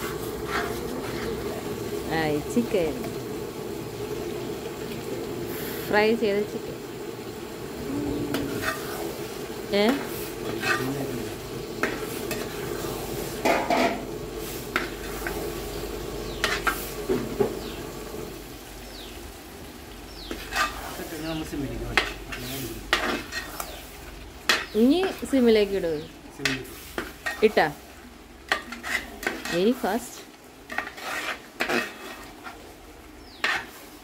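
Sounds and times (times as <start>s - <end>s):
spoon scraping pan: 0.0s - 1.6s, 8.3s - 17.8s, 20.2s - 25.4s, 26.0s - 27.8s, 28.5s - 34.0s
masala sizzling in pan: 0.0s - 34.0s.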